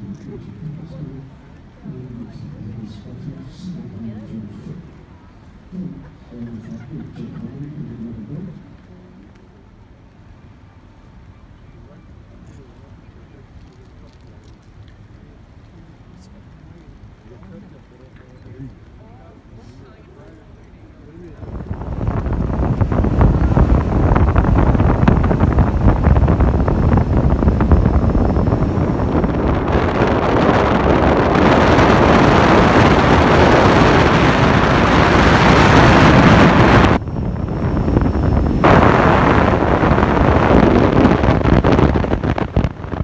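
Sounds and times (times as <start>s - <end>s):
wind buffeting microphone: 21.2s - 43.0s.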